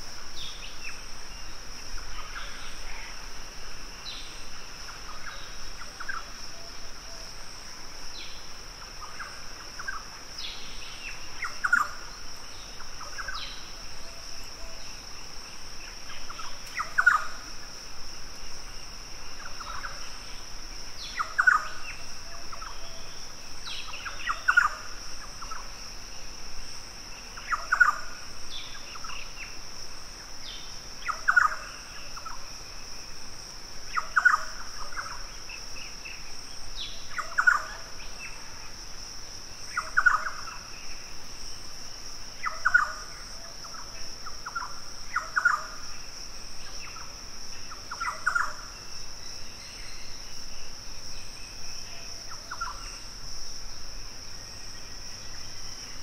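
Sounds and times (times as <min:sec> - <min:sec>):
high-pitched insect drone: 0:15.8 - 0:56.0.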